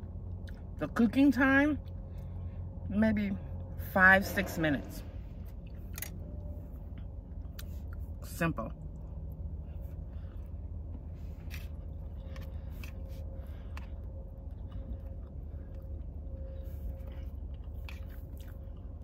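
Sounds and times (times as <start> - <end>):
chewing: 0.0 - 0.8, 8.8 - 19.0
steady low hum: 0.0 - 19.0.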